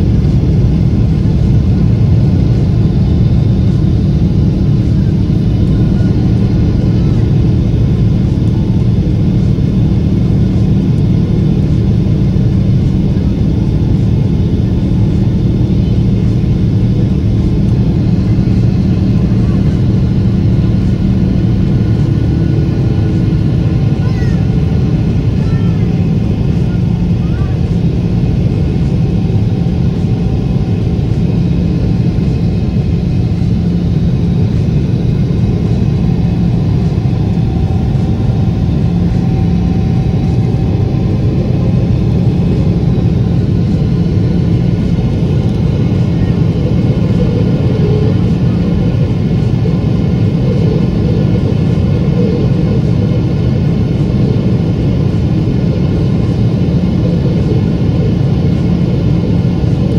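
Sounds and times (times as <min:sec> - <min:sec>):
jet engine rumble in cabin: 0:00.0 - 0:59.9.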